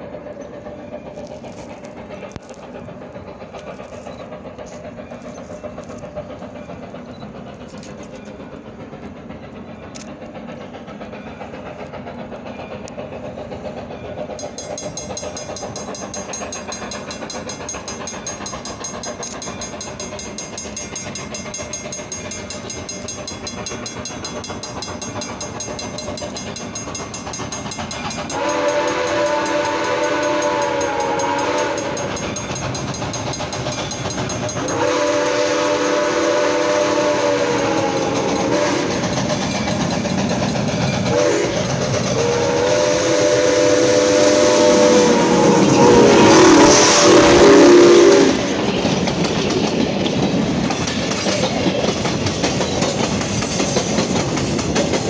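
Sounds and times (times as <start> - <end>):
steam locomotive exhaust chuffing: 0.0 - 55.0
steam whistle blast: 28.3 - 32.1, 34.7 - 39.1, 41.1 - 48.6.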